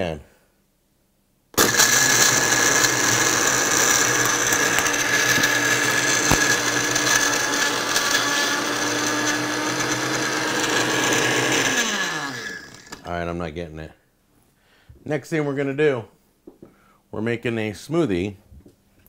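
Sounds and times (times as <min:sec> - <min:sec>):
blender motor running with ice: 0:01.6 - 0:13.1.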